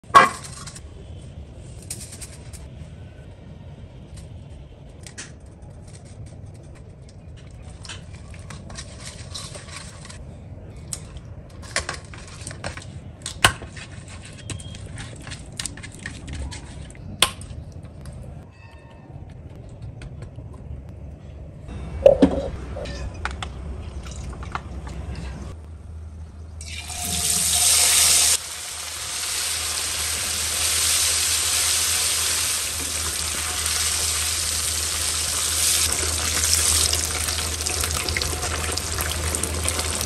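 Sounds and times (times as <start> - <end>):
low steady hum: 19.2 - 40.0.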